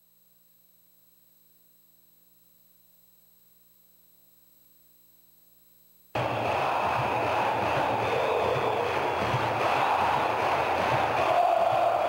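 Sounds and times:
faint hum and hiss: 0.0s - 6.2s.

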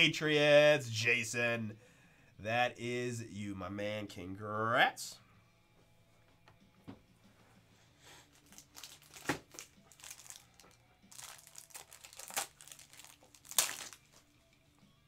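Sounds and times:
plastic packaging crinkling: 8.3s - 14.2s.

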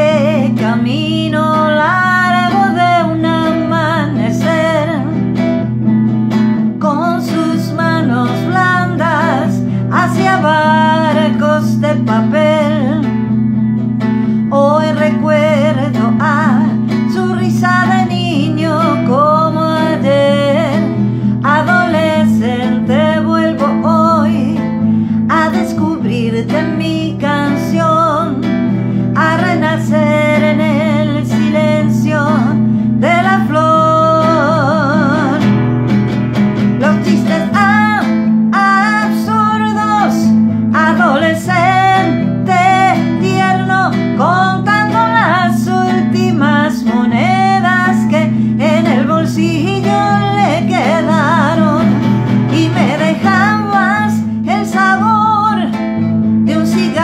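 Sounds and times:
acoustic guitar: 0.0s - 57.0s
woman singing a ballad: 0.0s - 57.0s.

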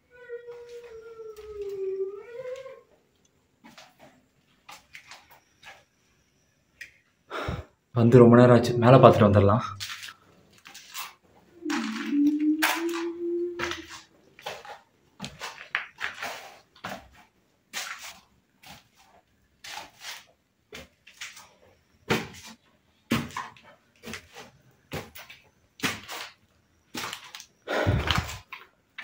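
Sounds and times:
footsteps crunching on gritty stairs: 13.6s - 17.3s, 27.0s - 28.6s.

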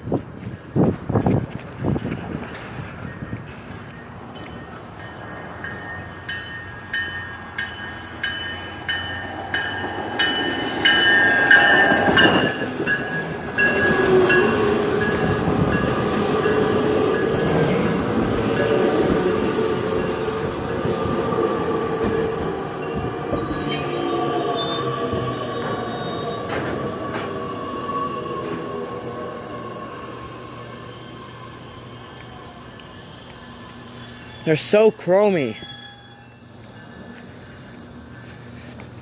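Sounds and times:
train cars rumbling: 0.0s - 39.0s
wheel and brake squeals: 22.7s - 27.3s, 30.5s - 38.7s
bell ringing: 30.6s - 36.6s.

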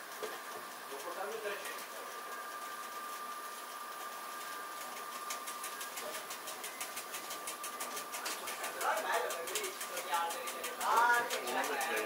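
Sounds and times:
fast even ticking: 5.1s - 12.0s.

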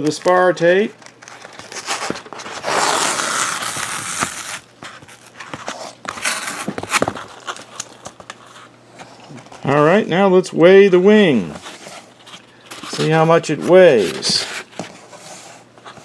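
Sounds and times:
tape crinkles and clicks: 0.0s - 9.8s
tape tearing off foam: 1.2s - 8.5s.

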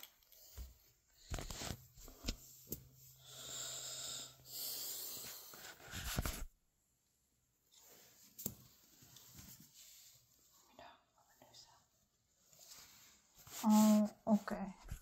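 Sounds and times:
breathy wheezing hiss: 3.2s - 5.6s.

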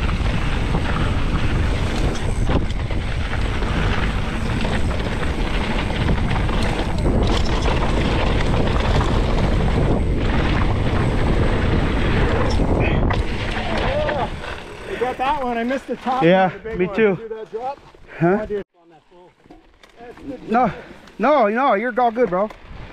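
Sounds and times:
wind on microphone: 0.0s - 15.0s
bike tyres rolling on dirt: 0.0s - 22.9s.

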